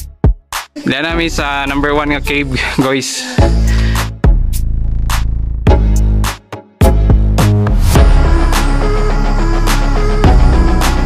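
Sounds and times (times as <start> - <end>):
beat with deep bass: 0.0 - 8.5.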